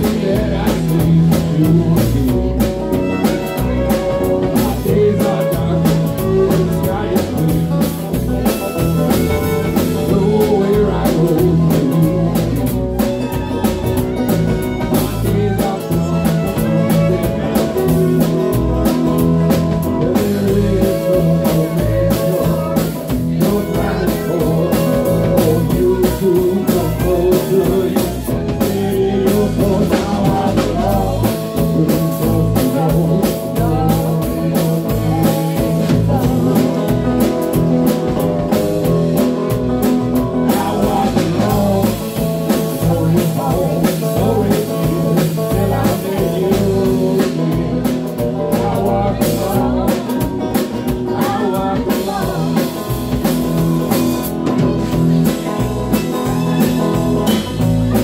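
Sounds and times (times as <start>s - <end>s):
live band with fiddle and guitars: 0.0s - 58.0s.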